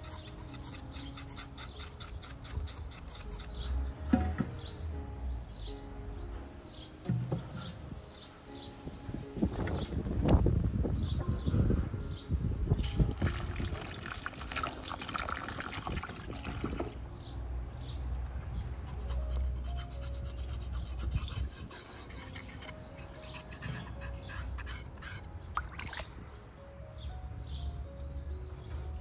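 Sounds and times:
knife scraping hooves: 0.0 - 3.9, 18.9 - 25.3.

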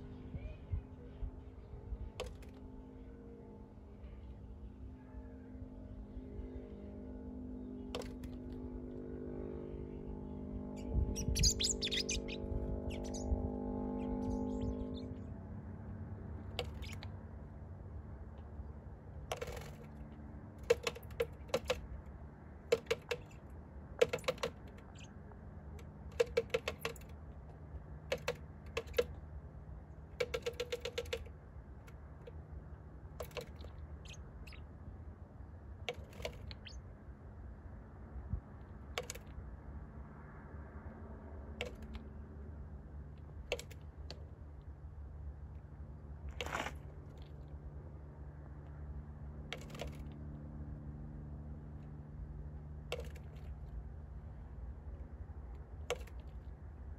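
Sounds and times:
bird beak tapping on glass: 22.7 - 23.4, 24.0 - 25.1, 26.1 - 27.1, 30.2 - 31.3, 33.2 - 34.6.

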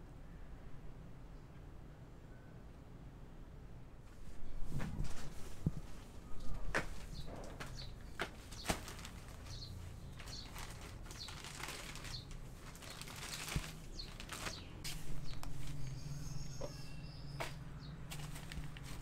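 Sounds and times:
plastic bag crinkling: 7.5 - 15.9, 18.1 - 19.0.

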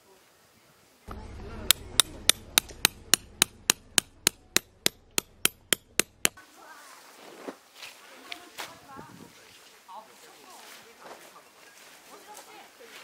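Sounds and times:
hammer striking metal tent peg: 1.7 - 6.4.

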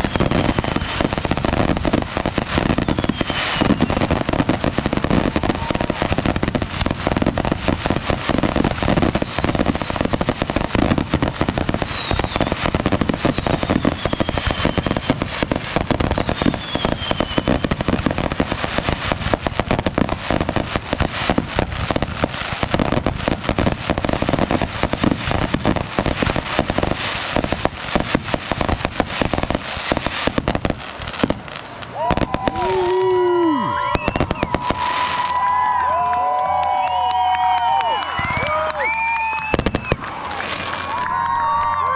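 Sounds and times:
firework whistles falling in pitch: 0.0 - 1.2, 2.6 - 4.2, 5.4 - 18.1, 32.0 - 35.8, 36.5 - 40.0
fireworks crackling pops: 0.0 - 41.9.

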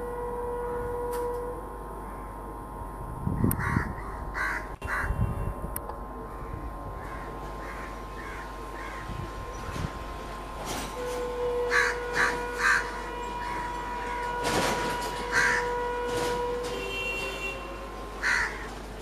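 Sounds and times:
crows cawing: 3.6 - 5.1, 6.3 - 9.2, 11.7 - 14.2, 15.3 - 15.8, 18.2 - 18.7.

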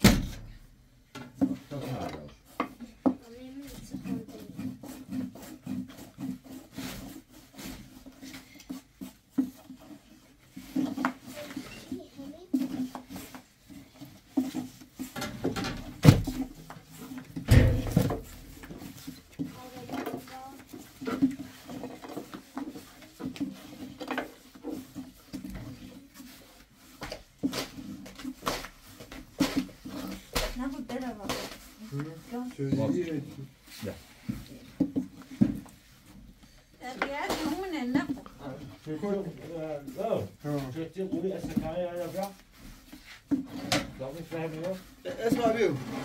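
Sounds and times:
rubbing against wood: 1.4 - 46.0.

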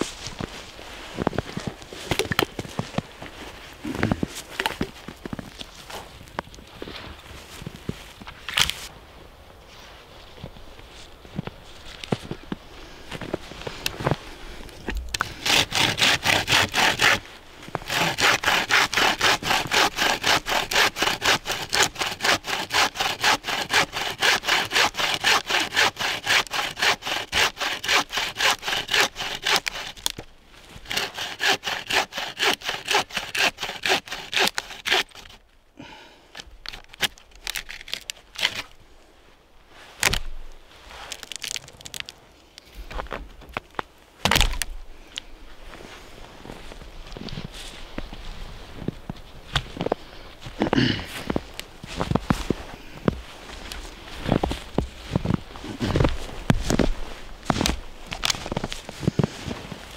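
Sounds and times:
hand saw cutting wood: 15.2 - 30.2, 30.8 - 35.4
wood handling: 41.1 - 45.3.

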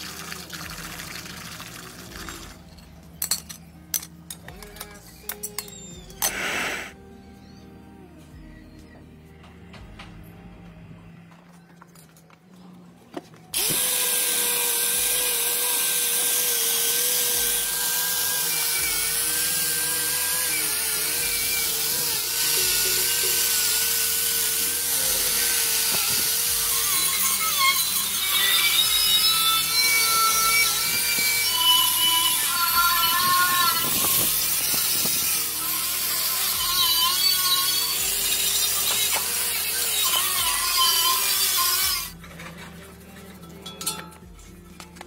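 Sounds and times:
angle grinder wire brush on metal: 13.6 - 44.6.

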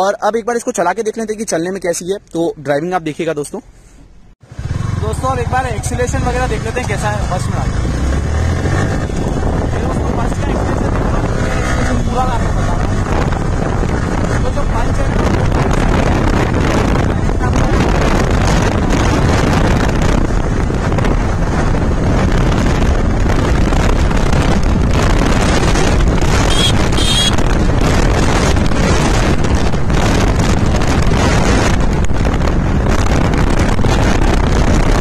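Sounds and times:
tyres on road: 0.0 - 35.0
wind rushing over microphone: 4.3 - 35.0
motorcycle engine running: 4.4 - 34.7.

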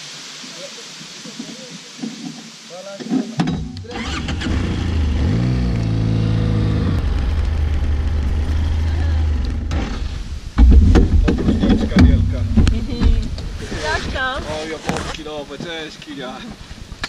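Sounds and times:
motorcycle engine running: 3.9 - 13.4.

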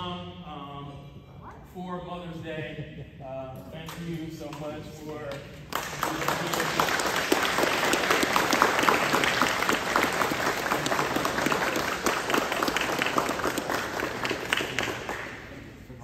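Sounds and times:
audience applauding: 5.7 - 15.7.

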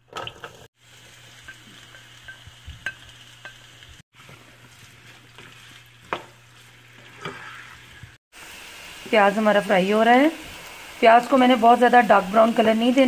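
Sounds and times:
onions sizzling in oil: 0.6 - 13.0
spoon knocking and scraping pan: 1.4 - 8.0.

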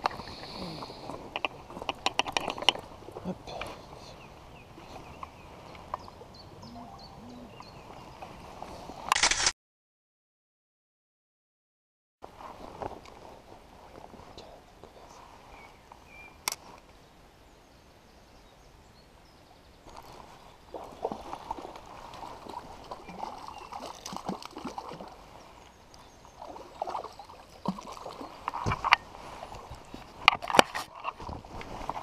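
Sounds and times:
small river running: 0.0 - 9.1, 12.2 - 32.0
sharp click: 9.1 - 9.5.

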